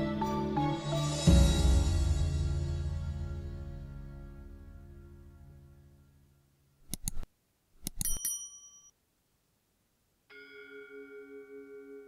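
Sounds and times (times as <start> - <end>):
soft background music: 0.0 - 6.6.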